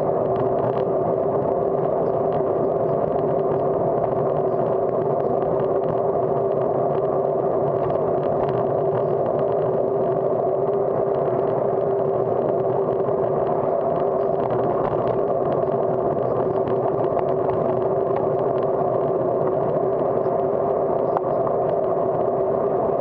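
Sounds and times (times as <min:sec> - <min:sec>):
constant low hum: 0:00.0 - 0:23.0
wind and road noise: 0:00.0 - 0:23.0.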